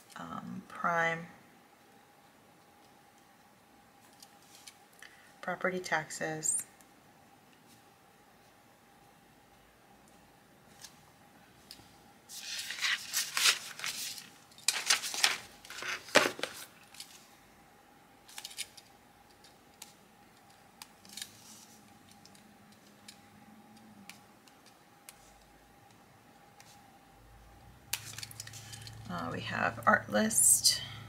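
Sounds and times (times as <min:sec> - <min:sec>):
paper rustling: 0:12.3 - 0:17.2.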